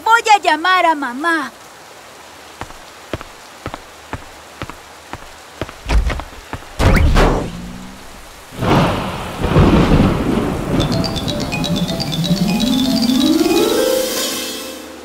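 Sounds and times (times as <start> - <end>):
rain with sharp drips: 0.0 - 15.0
thunder claps rumbling: 6.8 - 12.0
light chiming music: 10.7 - 15.0.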